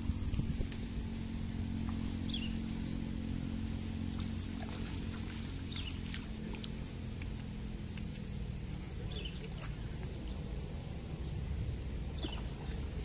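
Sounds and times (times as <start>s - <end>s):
motor humming: 0.0s - 13.0s.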